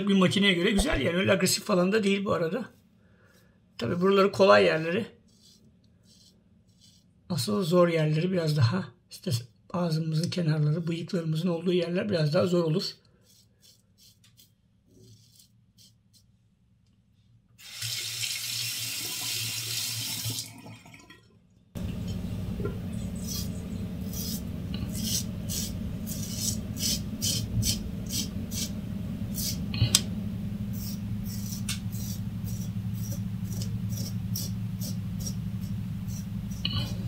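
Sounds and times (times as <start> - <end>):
razor scraping stubble: 5.3 - 7.1, 21.8 - 37.0
steady low hum: 21.8 - 37.0
tap running: 21.8 - 37.0.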